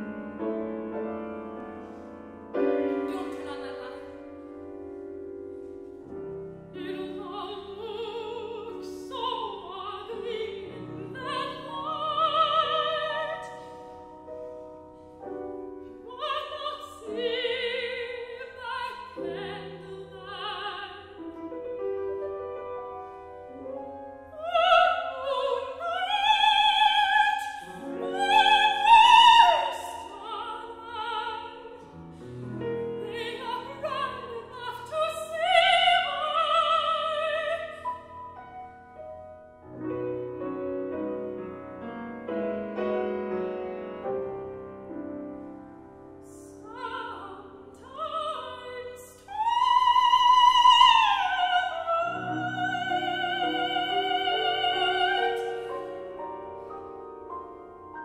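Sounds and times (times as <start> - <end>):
grand piano: 0.0 - 58.0
operatic soprano singing: 2.9 - 4.2, 6.7 - 13.9, 15.9 - 21.4, 24.3 - 38.2, 46.2 - 56.6.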